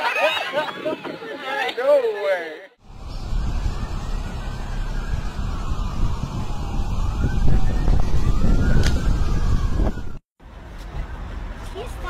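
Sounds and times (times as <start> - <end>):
wind buffeting microphone: 0.4 - 1.5, 2.8 - 10.2
faint siren wailing: 2.8 - 10.2.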